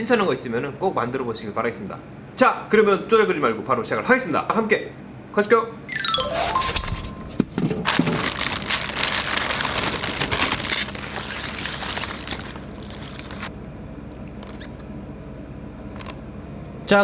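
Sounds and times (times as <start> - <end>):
crushed ice shifting: 7.9 - 13.5
foil crinkling: 7.9 - 13.5.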